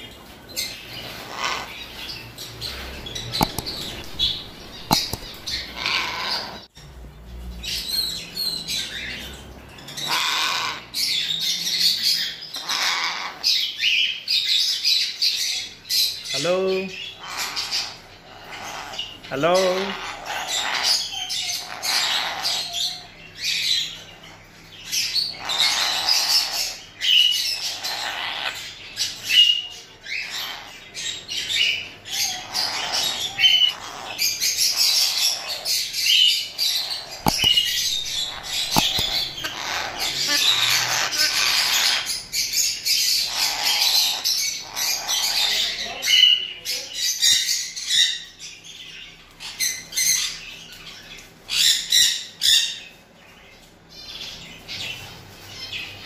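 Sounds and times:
parrot squawking: 0.6s - 6.7s, 9.9s - 15.0s, 16.9s - 24.4s, 25.0s - 48.3s.

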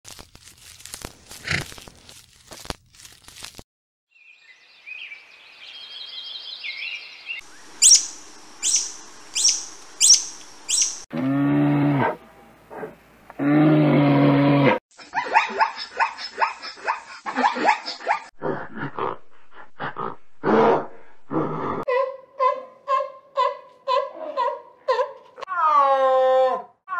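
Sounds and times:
high twittering chirps: 4.4s - 11.1s
sharp high chirps: 7.8s - 11.1s.

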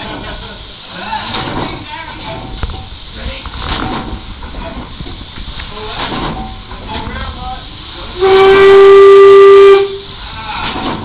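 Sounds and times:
steam hissing: 0.0s - 11.0s
steam whistle blowing: 8.1s - 10.2s.

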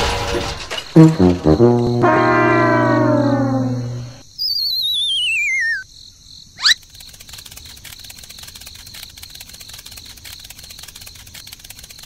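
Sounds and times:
crickets chirping: 1.0s - 12.0s
cartoon whistle sliding down: 1.4s - 5.8s.

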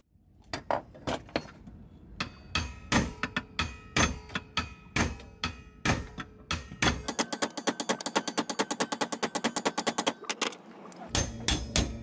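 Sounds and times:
hammer striking metal: 0.5s - 10.3s, 11.1s - 12.0s.

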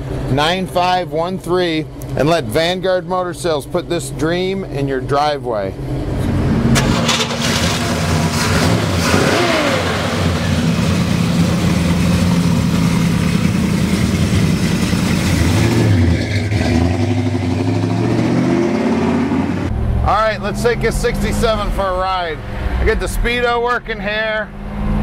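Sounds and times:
car engine running and revving: 5.7s - 23.4s.

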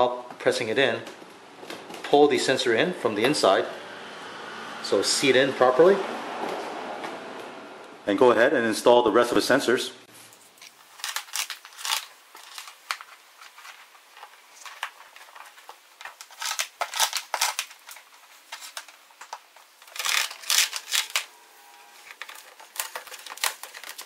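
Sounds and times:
plastic clicking and rustling: 10.6s - 21.3s, 22.0s - 24.0s.

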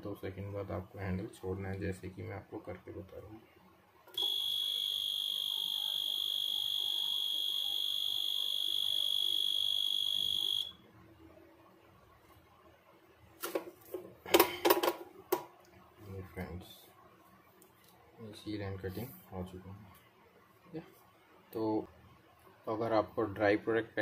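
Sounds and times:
high-pitched machine beep: 4.2s - 10.8s.

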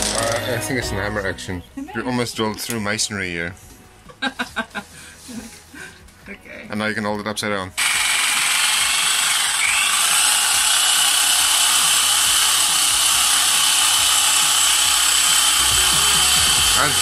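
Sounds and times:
electric drill running blender: 7.8s - 17.0s.

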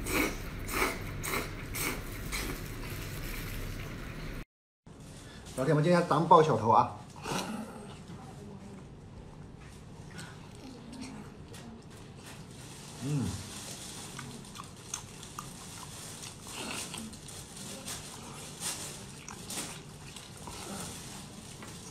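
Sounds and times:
short sucking slurps: 0.0s - 2.6s
wet chewing and lip-smacking: 14.0s - 17.3s, 18.1s - 20.7s.

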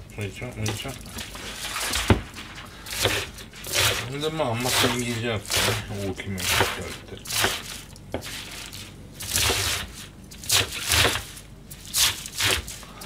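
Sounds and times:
knife chopping cabbage on board: 2.9s - 8.7s, 9.3s - 12.7s.

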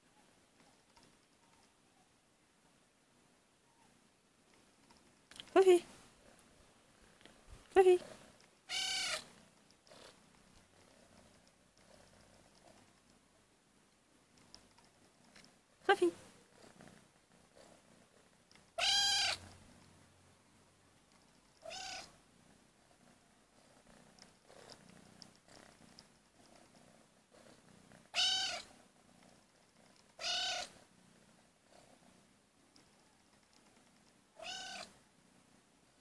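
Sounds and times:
kitten meowing: 8.7s - 9.2s, 18.8s - 19.4s, 21.6s - 22.1s, 28.1s - 28.7s, 30.2s - 30.7s, 34.4s - 34.9s.

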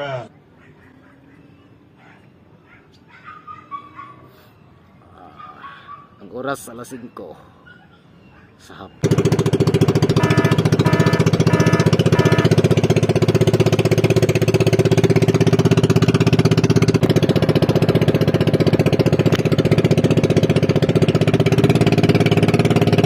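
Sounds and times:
small boat engine chugging: 9.0s - 23.0s.

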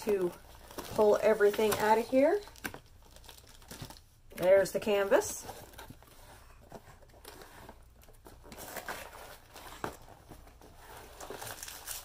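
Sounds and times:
plastic sleeve crinkling: 0.0s - 4.2s, 7.1s - 12.0s.

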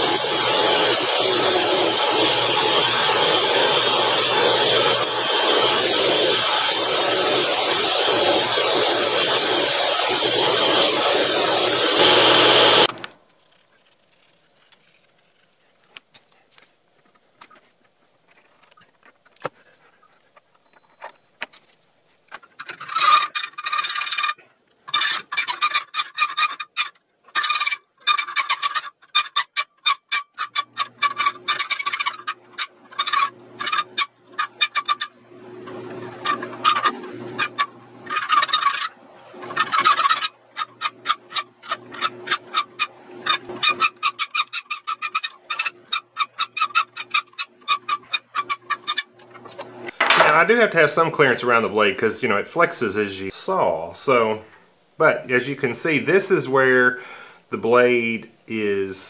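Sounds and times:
belt sander grinding steel: 0.0s - 15.6s, 22.3s - 52.0s
hand file on steel: 39.5s - 49.1s.

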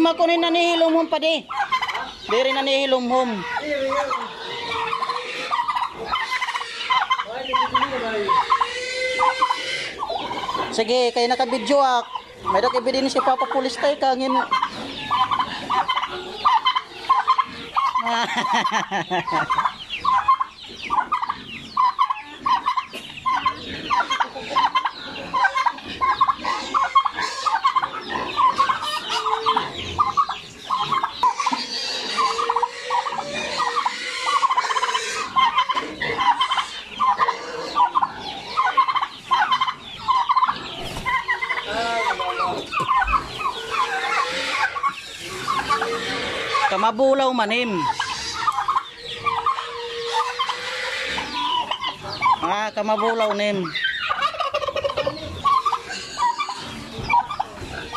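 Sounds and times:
chickens and chicks calling: 0.0s - 57.9s
turkey gobbling: 0.0s - 57.9s.

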